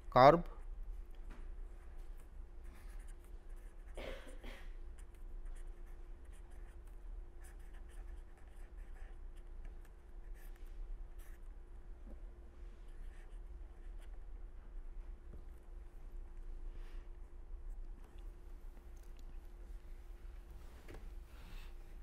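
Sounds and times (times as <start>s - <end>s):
faint steady hum: 0.0s - 22.0s
pen scratching on paper: 2.7s - 4.0s, 5.0s - 11.4s, 12.9s - 14.1s.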